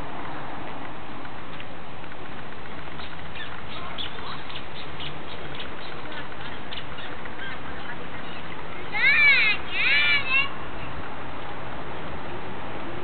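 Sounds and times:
steady background noise: 0.0s - 13.0s
ducklings peeping: 3.0s - 10.4s.

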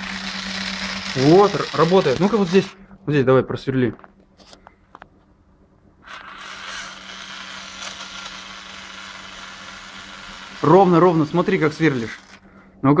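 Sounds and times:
toy drill motor whirring: 0.0s - 2.8s, 6.0s - 12.4s.

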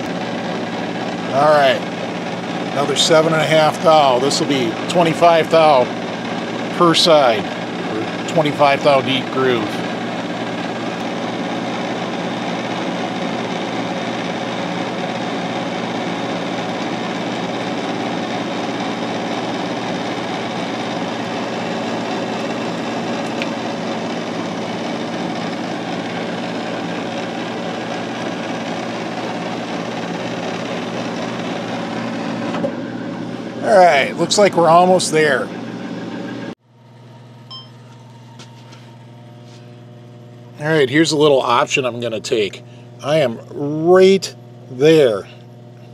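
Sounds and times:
lathe tool cutting thread: 0.0s - 36.6s
metal lathe humming: 0.0s - 45.9s.

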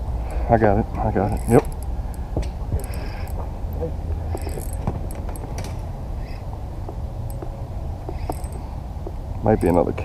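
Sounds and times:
low steady rumble: 0.0s - 10.0s
fishing reel gear whir: 1.1s - 3.4s, 4.3s - 5.6s, 6.2s - 6.4s, 8.1s - 8.7s, 9.5s - 9.9s.

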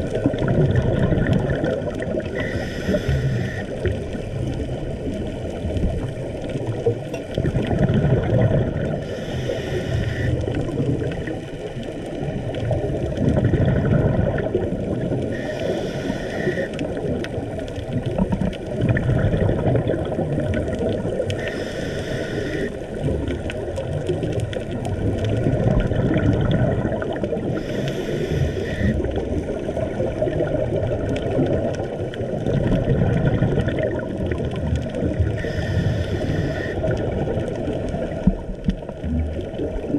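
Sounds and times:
exhaled bubbles underwater: 0.0s - 39.9s
underwater rushing background: 0.0s - 39.9s
regulator hiss: 2.4s - 3.8s, 9.1s - 10.5s, 15.3s - 16.8s, 21.4s - 22.9s, 27.6s - 29.0s, 35.4s - 36.8s.

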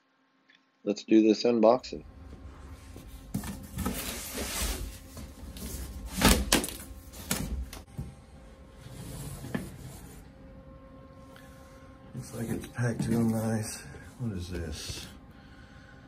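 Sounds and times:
cardboard scraping and rustling: 2.9s - 7.8s.

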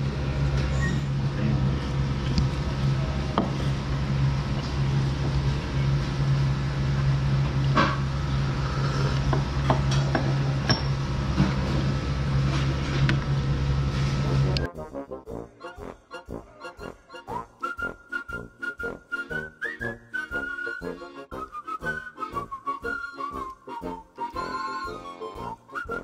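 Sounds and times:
steady low hum: 0.0s - 26.0s
tableware clinking: 9.7s - 11.0s.

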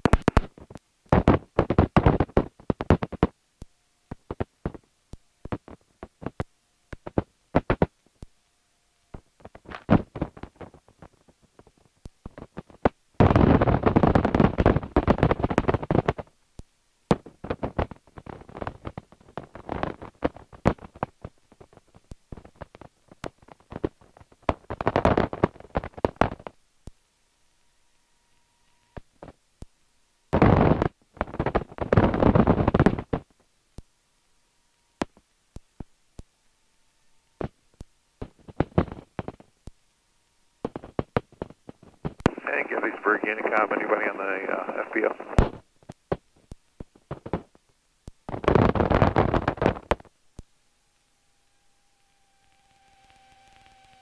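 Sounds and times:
wind noise: 9.4s - 16.3s, 30.4s - 33.3s, 48.3s - 50.1s
radial engine idling over intercom: 42.3s - 45.4s.

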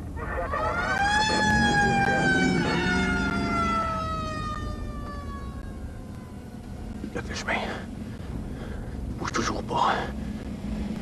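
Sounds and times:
car engine rumble: 0.0s - 11.0s
emergency siren wailing: 0.1s - 7.6s.

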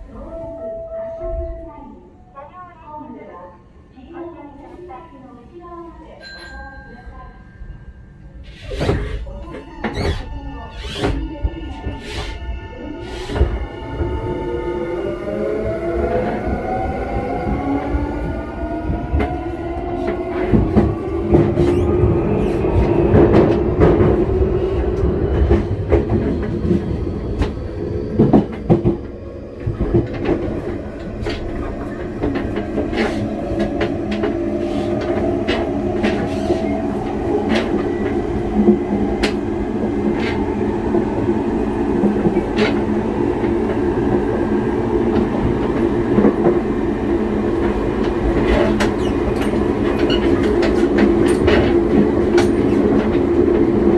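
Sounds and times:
train running hum: 10.6s - 53.9s.

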